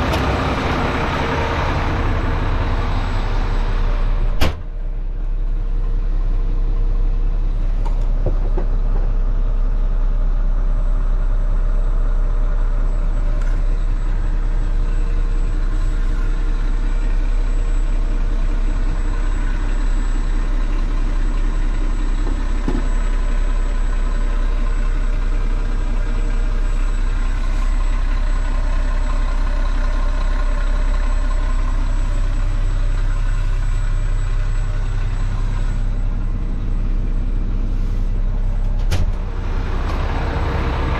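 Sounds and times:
diesel truck engine idling: 0.0 - 40.9.

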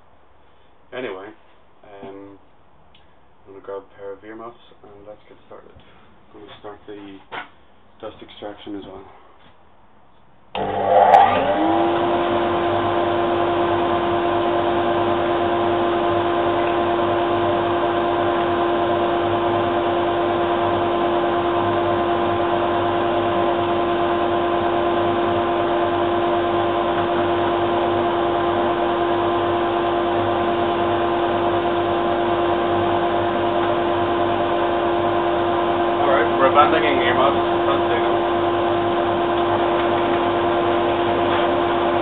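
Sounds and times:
dust extractor and bandsaw running: 10.6 - 42.0.

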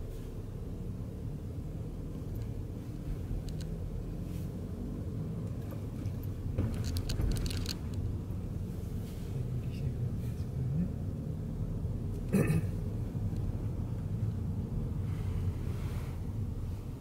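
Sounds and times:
car engine and road noise: 0.0 - 17.0
clicks and rattles: 6.6 - 8.0.

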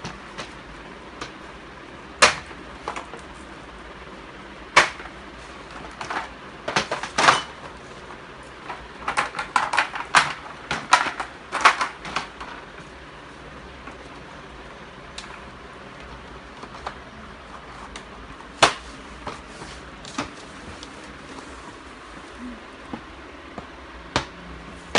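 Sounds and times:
plastic panels knocking and clicking: 4.7 - 7.8, 8.6 - 12.7.

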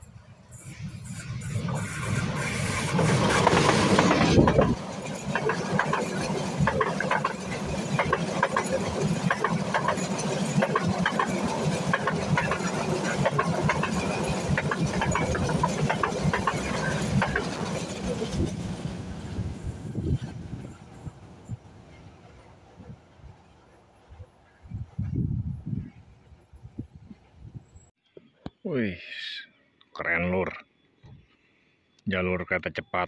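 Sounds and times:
diesel locomotive engine: 0.0 - 27.9
train wheels clickety-clack: 0.8 - 19.8.

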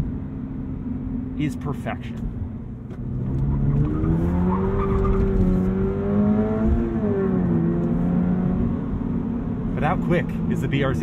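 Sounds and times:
road noise: 0.0 - 11.0
car engine accelerating: 2.8 - 10.8.

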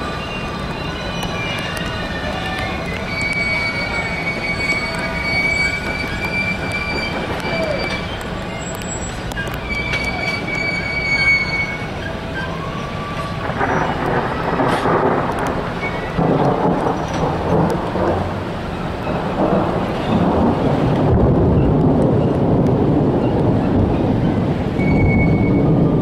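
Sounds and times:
train wheel squeal: 0.0 - 16.3, 24.7 - 26.0
steady rain: 0.0 - 26.0
thunder rumbling: 0.0 - 26.0.

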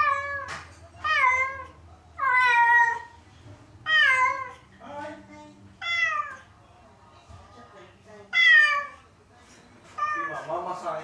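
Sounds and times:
cat meowing loudly: 5.8 - 6.4, 8.4 - 9.0, 10.0 - 10.5.

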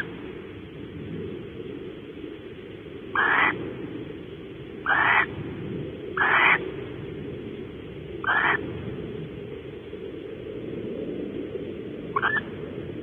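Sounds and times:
low background noise: 0.0 - 13.0
barn owl screeching: 3.1 - 3.6, 4.8 - 5.3, 6.2 - 6.6, 8.2 - 8.6, 12.1 - 12.4.

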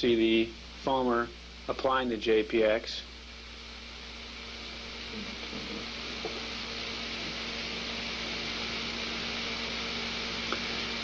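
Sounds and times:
low hum: 0.0 - 11.0
foam spraying hiss: 4.1 - 11.0.

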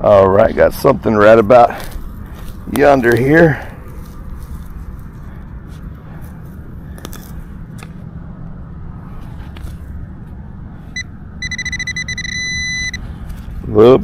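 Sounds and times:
low steady rumble: 0.0 - 14.0
pinpointer beeping: 11.0 - 13.0.

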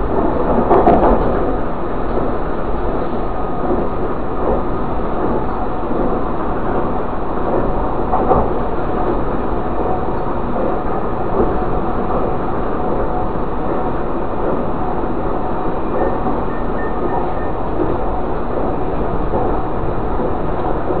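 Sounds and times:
train wheels rumbling on rail: 0.0 - 21.0.

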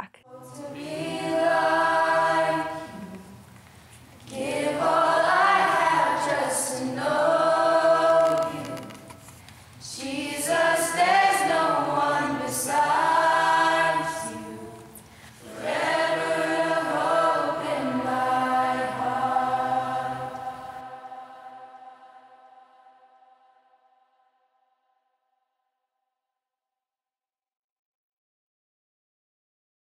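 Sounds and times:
young voices singing a cappella: 0.2 - 23.2.

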